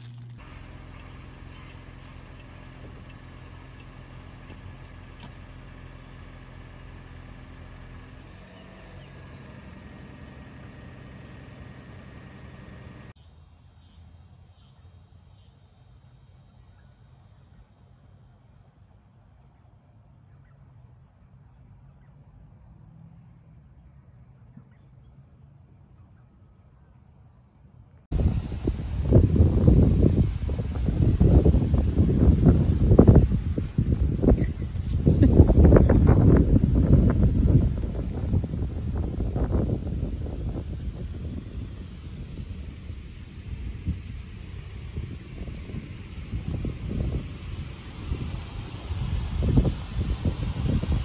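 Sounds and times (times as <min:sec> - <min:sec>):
insects trilling in grass: 0:00.0 - 0:00.9, 0:28.1 - 0:51.0.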